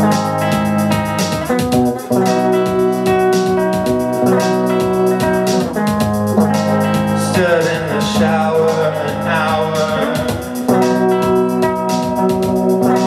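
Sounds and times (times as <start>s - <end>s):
electric guitar chords: 0.0s - 13.0s
man singing: 7.2s - 10.7s.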